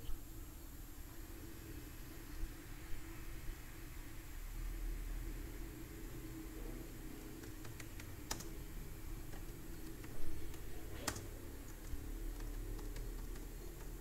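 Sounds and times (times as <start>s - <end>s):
keyboard keystroke clicks: 7.4s - 8.6s, 9.2s - 14.0s.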